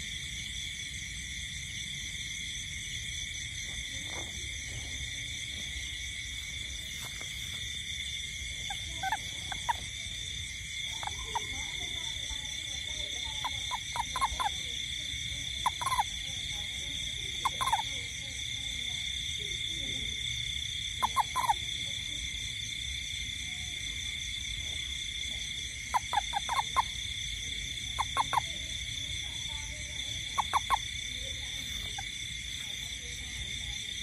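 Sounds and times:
night insects droning: 0:00.0 - 0:34.0
toad calling: 0:03.6 - 0:34.0.

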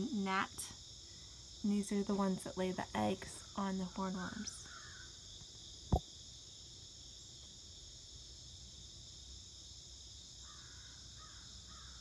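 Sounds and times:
high-pitched insect chorus: 0:00.0 - 0:12.0
crow cawing: 0:10.5 - 0:12.0.

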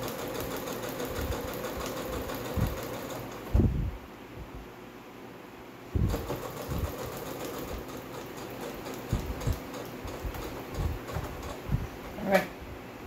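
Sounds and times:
sewing machine stitching: 0:00.0 - 0:03.5, 0:06.0 - 0:12.4.

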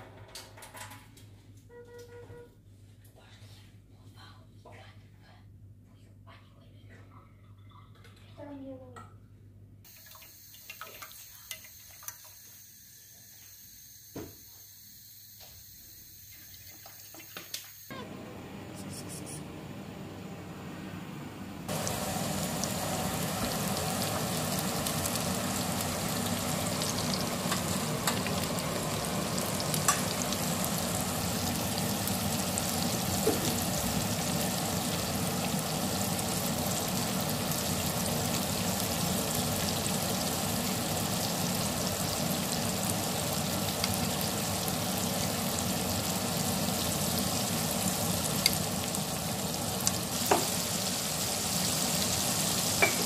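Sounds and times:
chicken sizzling in hot oil: 0:09.9 - 0:17.9, 0:21.7 - 0:53.0.

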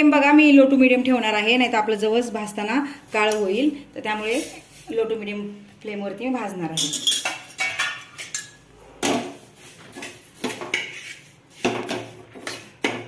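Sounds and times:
metal spatula scraping frying pan: 0:06.8 - 0:13.0.

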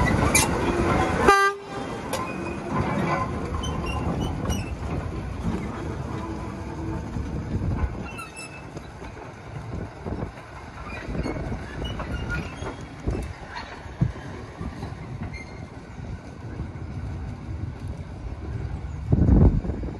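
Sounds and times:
wheel squeals: 0:00.0 - 0:09.3, 0:10.1 - 0:16.1
low engine rumble: 0:00.0 - 0:19.9
wheels clanking over rail joints: 0:00.0 - 0:19.9.

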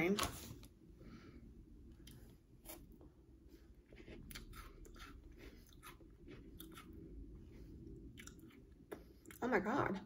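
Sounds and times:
crunching and chewing cookie: 0:01.9 - 0:09.4.

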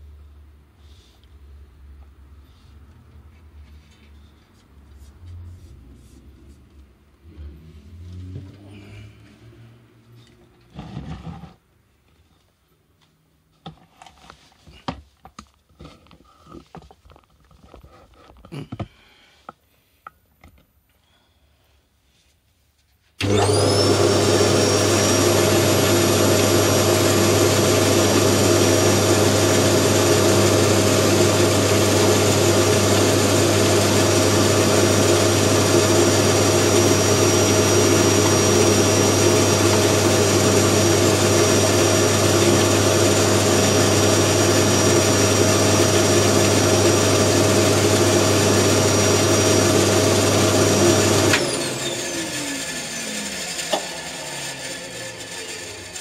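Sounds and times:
band saw motor hum and whine: 0:51.3 - 0:56.0.

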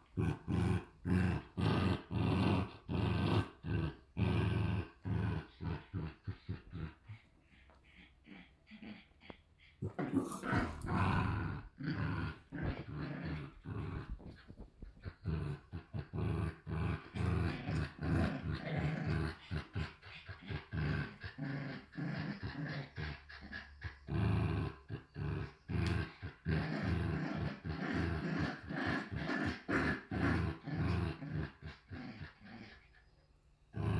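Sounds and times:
dogs play-growling: 0:00.0 - 0:33.1, 0:33.7 - 0:33.9.

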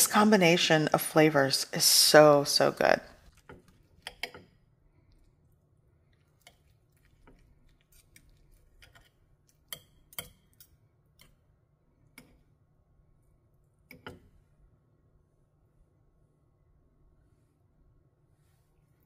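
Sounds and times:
fork and knife clicking on plate: 0:08.8 - 0:11.3.

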